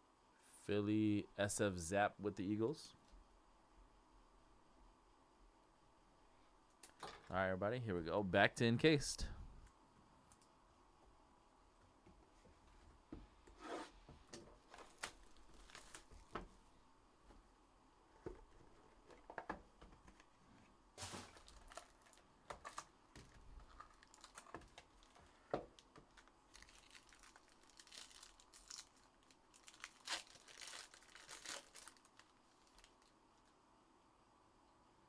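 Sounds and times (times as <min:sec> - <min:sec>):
foil card pack crinkling and tearing: 0:14.7 - 0:16.3, 0:21.0 - 0:25.2, 0:26.1 - 0:33.1.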